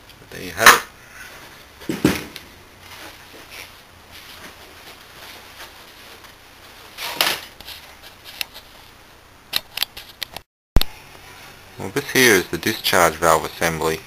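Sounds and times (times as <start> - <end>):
faint rustling: 1.0 - 9.2.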